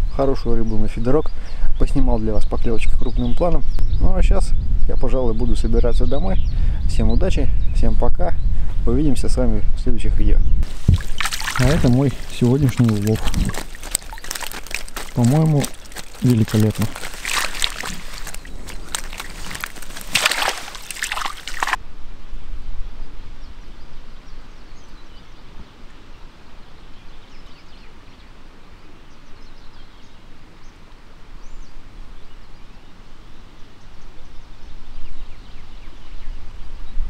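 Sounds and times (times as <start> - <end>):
wind rumbling on microphone: 0.0 - 25.8
fish sloshing in keepnet: 10.6 - 21.8.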